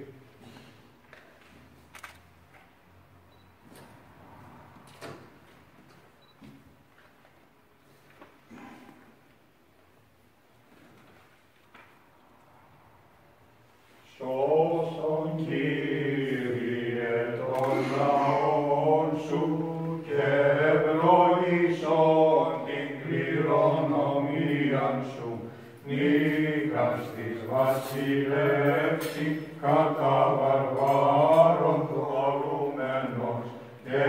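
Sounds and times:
male voices chanting a hymn: 14.0 - 34.0.

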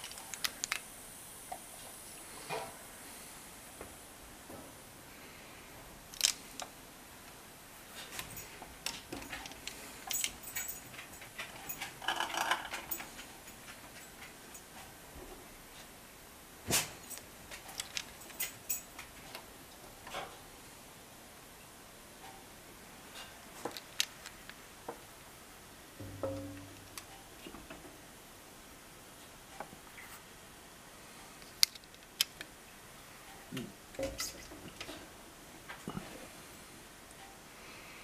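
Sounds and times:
glass jars clinking and knocking: 10.1 - 13.2, 26.0 - 27.0.

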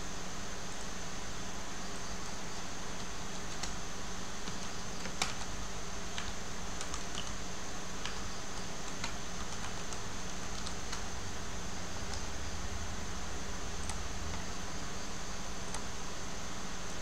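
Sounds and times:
computer keyboard clicking: 3.0 - 3.8, 4.4 - 7.4, 8.0 - 11.2, 12.0 - 12.4, 13.8 - 14.5, 15.6 - 15.9.

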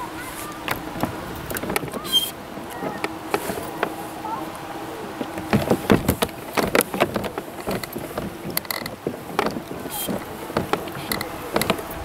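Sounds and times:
mechanical clicking and knocking: 5.2 - 12.0.

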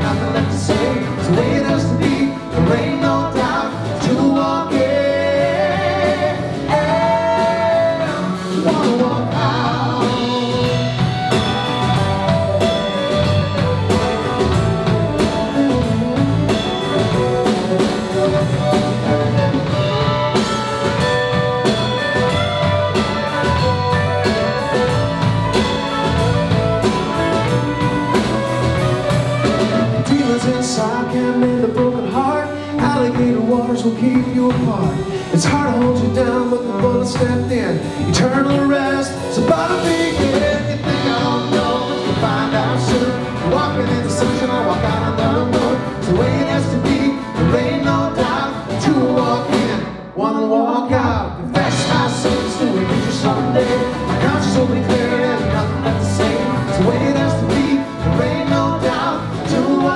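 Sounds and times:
country rock band playing: 0.0 - 50.2, 50.8 - 59.9
fiddle: 9.0 - 33.5.

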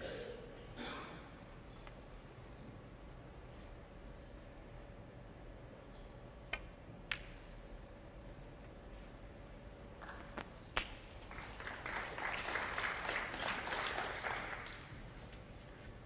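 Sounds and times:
snooker balls clicking: 6.4 - 7.5
audience applauding: 11.3 - 15.1.

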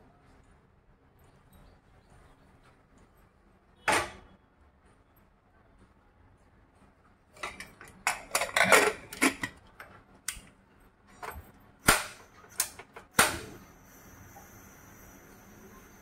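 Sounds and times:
metal lid clicks and clanks: 7.4 - 10.4
pressure cooker hissing: 12.1 - 16.0.

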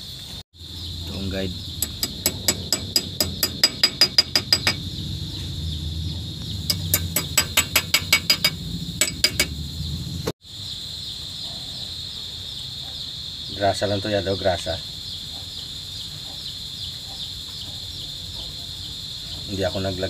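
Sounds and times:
crickets chirring: 0.0 - 20.0
low hum: 0.6 - 10.3
hand tool metallic clicks: 1.8 - 4.8, 6.7 - 9.6.

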